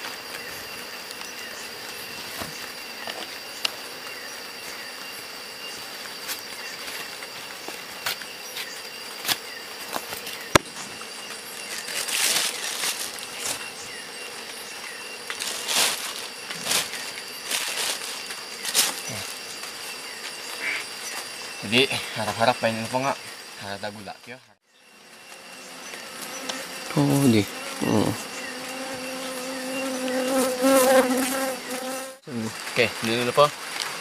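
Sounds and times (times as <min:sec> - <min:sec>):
insects trilling: 0:00.0 - 0:34.0
rustling: 0:10.9 - 0:14.6, 0:15.2 - 0:21.3.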